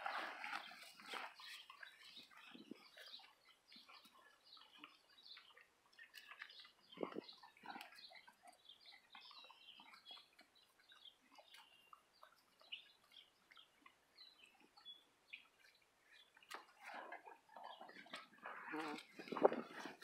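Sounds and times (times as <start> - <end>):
horse tearing and chewing grass: 0.0 - 3.2, 16.4 - 20.0.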